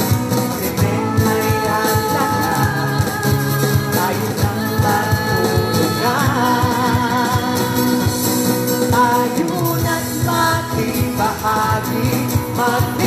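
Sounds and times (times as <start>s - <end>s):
singers holding long notes: 0.0s - 8.6s
acoustic guitar: 0.0s - 13.0s.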